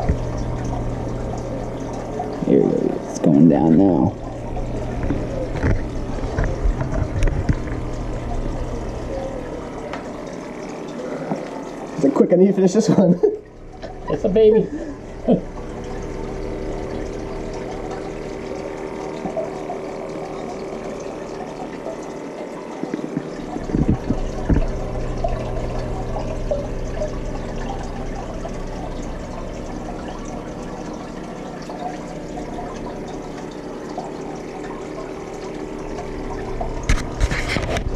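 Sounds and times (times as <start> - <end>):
low hum: 0.0 - 12.0, 13.2 - 37.9
water bubbling and trickling: 0.0 - 37.9.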